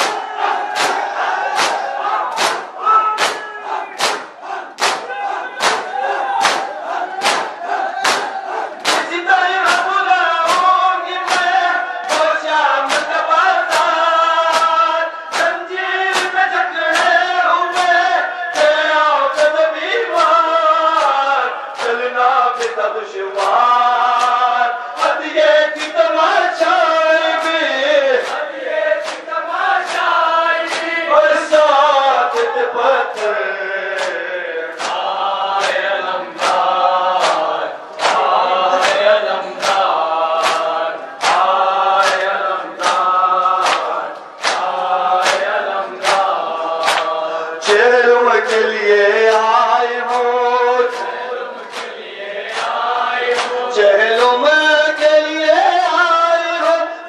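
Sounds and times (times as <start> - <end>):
hands striking chests: 0.0 - 9.9
men chanting a lament: 0.0 - 57.0.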